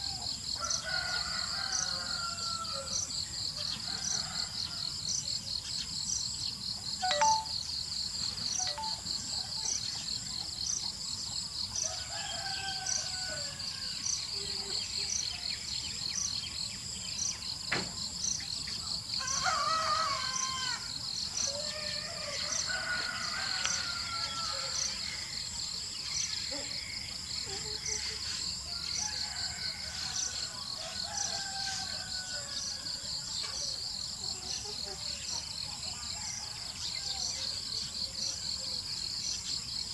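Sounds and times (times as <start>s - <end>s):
insects chirring: 3.8s - 14.3s.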